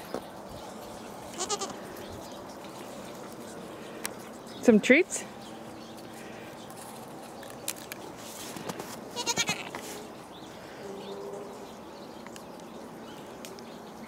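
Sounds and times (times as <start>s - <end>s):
goat bleating: 1.3s - 1.8s, 9.1s - 9.8s.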